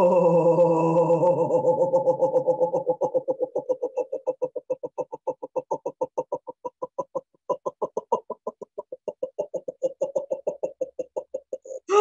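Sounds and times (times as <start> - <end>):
woman voicing staccato laughter: 3.0 - 11.7.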